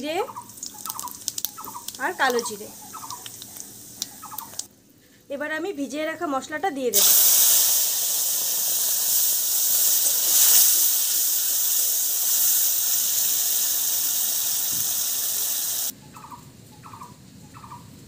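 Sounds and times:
paste sizzling in hot oil: 0:00.4 - 0:04.7, 0:07.0 - 0:15.9.

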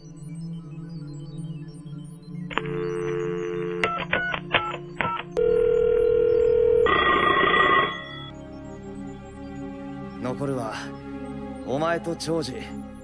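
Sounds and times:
telephone dial tone: 0:02.5 - 0:08.3
touch-tone keypad beeps: 0:02.5 - 0:08.3
rough electronic tone: 0:05.4 - 0:08.3.

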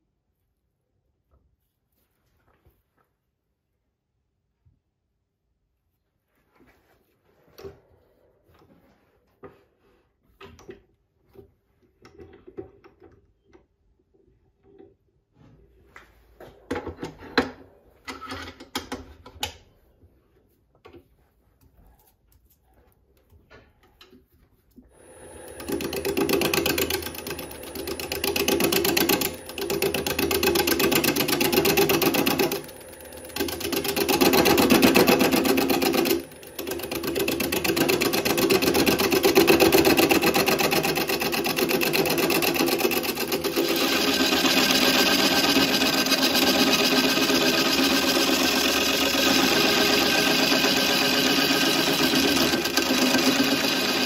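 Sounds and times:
gouge cutting wood on lathe: 0:24.9 - 0:54.0.

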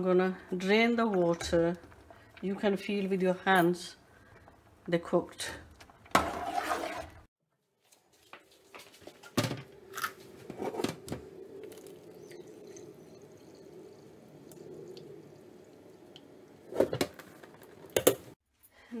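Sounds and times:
water pouring into a sink: 0:06.0 - 0:07.3.

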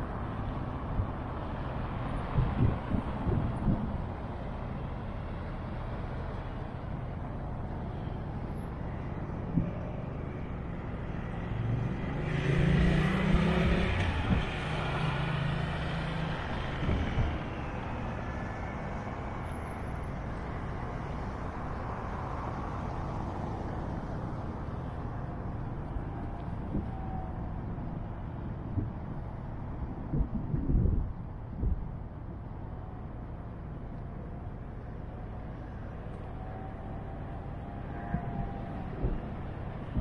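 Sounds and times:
road traffic hum: 0:00.0 - 0:40.0
vehicle passing close: 0:09.4 - 0:18.2.

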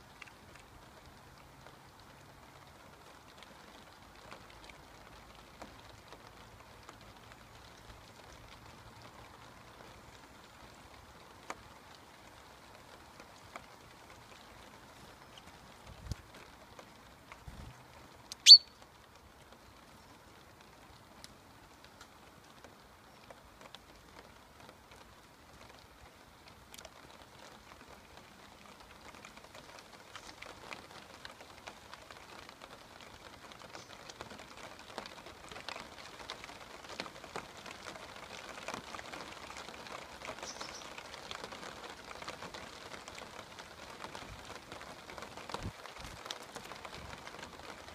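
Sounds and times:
rain pattering: 0:00.0 - 0:47.9
high chirp: 0:18.4 - 0:18.8.

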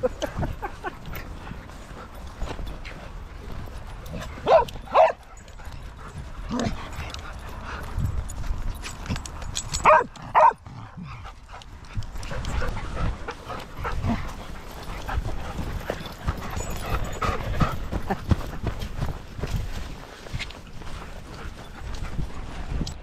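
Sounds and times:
dog barking: 0:04.4 - 0:05.2, 0:09.8 - 0:10.6
footsteps on grass: 0:12.8 - 0:22.8.

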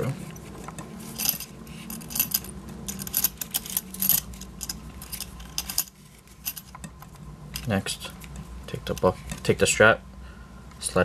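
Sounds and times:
metal buckle clinking and rattling: 0:01.1 - 0:06.8.

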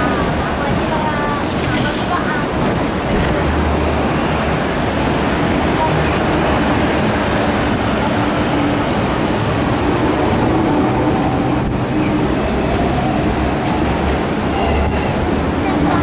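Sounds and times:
road traffic: 0:00.0 - 0:16.0
tram wheels rumbling on rails: 0:00.0 - 0:16.0.

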